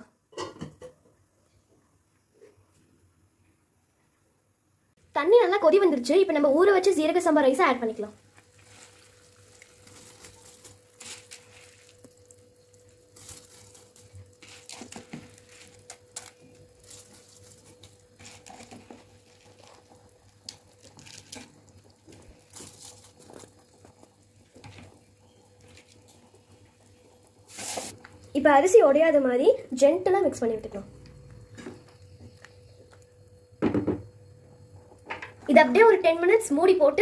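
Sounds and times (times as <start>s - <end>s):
faint steady hum: 0.0s - 37.0s
rice dropping into water: 8.4s - 23.9s.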